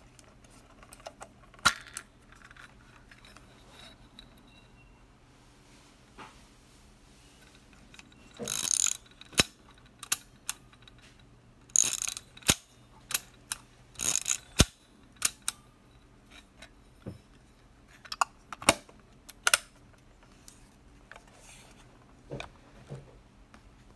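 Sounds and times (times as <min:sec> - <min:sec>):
film advance ratcheting: 0:08.0 - 0:11.0, 0:11.6 - 0:15.6.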